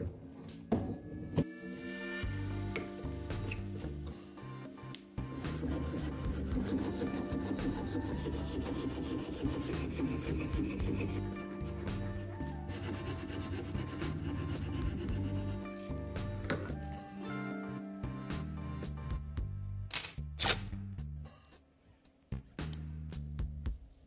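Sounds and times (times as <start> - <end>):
hand saw rasping through wood: 5.4 - 15.6.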